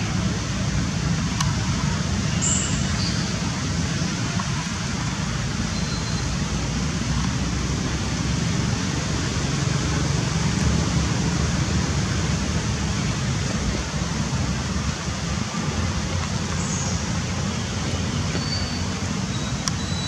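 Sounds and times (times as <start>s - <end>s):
faint high chirp: 2.3s - 3.4s, 5.7s - 6.4s, 18.3s - 20.0s.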